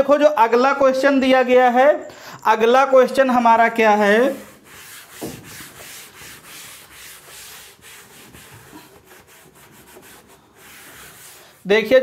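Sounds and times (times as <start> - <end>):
duster wiping blackboard: 3.4 - 12.0.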